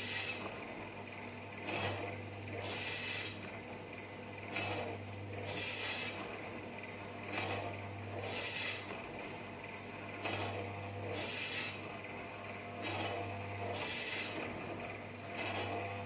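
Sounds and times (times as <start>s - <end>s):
slicer blade hissing cut: 0.0s - 0.5s, 2.6s - 3.4s, 5.5s - 6.2s, 8.2s - 8.9s, 11.1s - 11.8s, 13.7s - 14.4s
motor humming: 0.0s - 16.0s.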